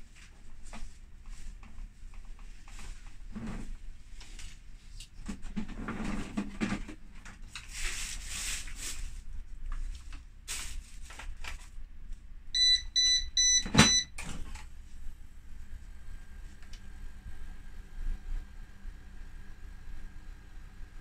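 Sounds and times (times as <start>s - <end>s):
control panel beeping: 12.6s - 14.1s.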